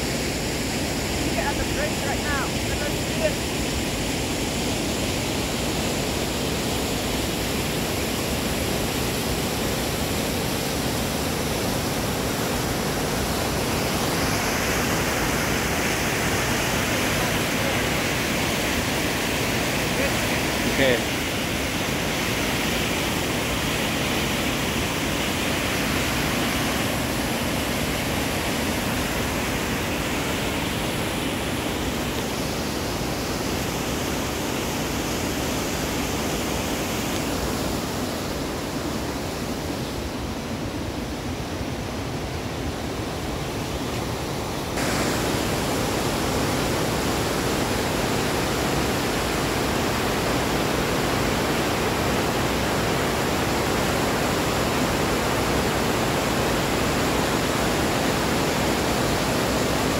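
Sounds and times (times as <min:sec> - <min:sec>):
waterfall rushing: 0:00.0 - 0:59.9.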